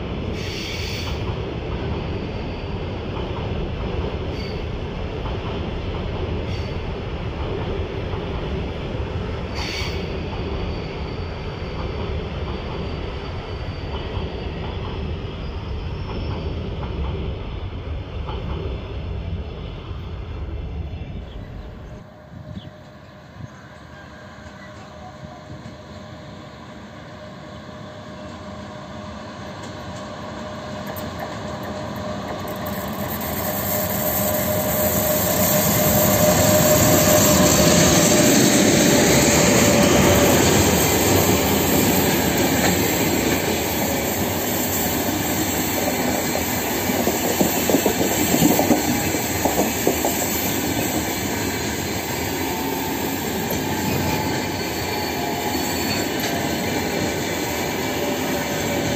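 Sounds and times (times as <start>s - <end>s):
train wheels clickety-clack: 0.0s - 18.9s, 28.2s - 58.9s
electric locomotive whine: 0.0s - 58.9s
wheel squeal: 9.5s - 14.6s, 32.4s - 43.1s, 52.4s - 56.8s.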